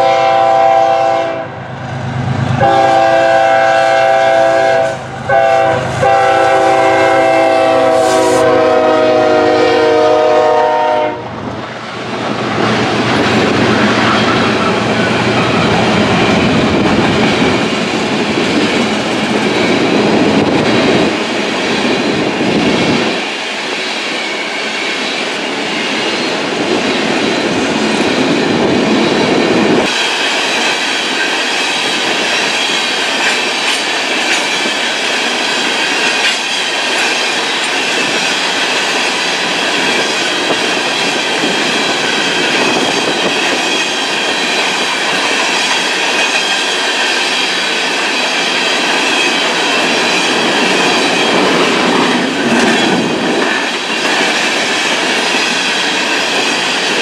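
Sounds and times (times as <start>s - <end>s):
locomotive air horn: 0.0s - 1.6s, 2.6s - 11.3s.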